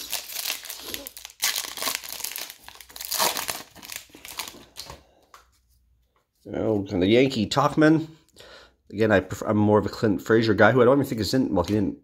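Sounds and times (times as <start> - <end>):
foil wrapper crinkling and tearing: 0.0 - 4.9.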